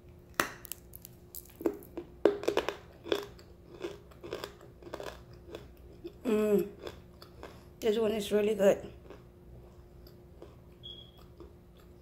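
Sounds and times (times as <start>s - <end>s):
person crunching clay: 0.3s - 2.8s.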